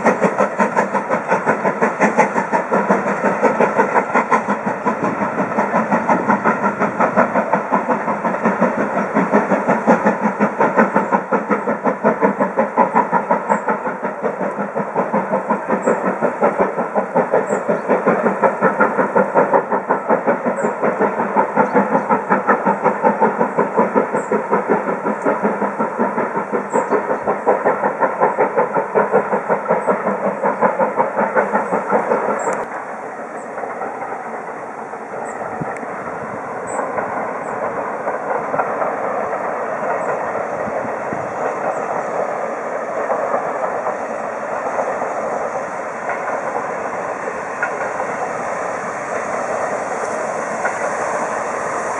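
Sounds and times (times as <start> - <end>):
steam locomotive chugging: 0.0 - 51.9
wheels clattering on rails: 0.0 - 51.9.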